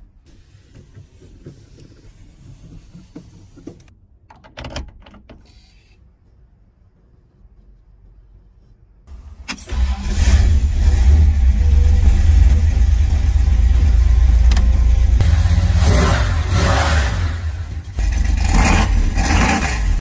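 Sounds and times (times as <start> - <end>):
car engine starting and idling: 9.1 - 20.0.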